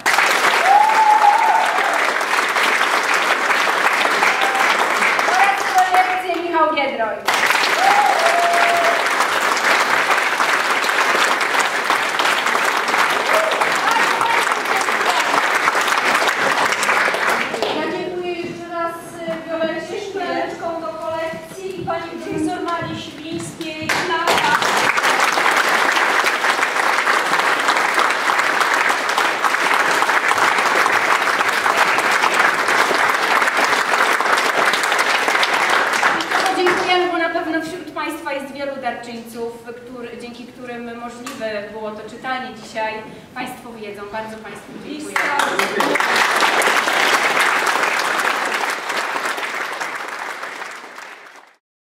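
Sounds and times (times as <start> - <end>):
audience applauding: 0.0 - 6.4, 7.2 - 18.0, 23.9 - 37.1, 45.0 - 51.6.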